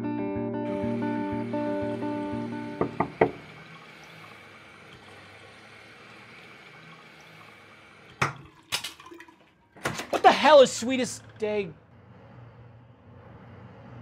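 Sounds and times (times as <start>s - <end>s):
tap running: 0.7s - 11.7s
sharp knocks: 2.8s - 3.5s.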